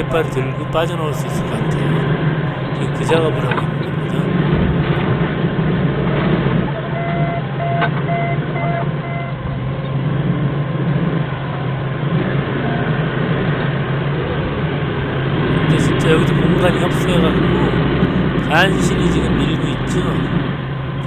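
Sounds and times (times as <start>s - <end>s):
diesel forklift engine running: 0.0s - 5.0s, 15.0s - 21.0s
reversing alarm beeps: 6.9s - 9.4s.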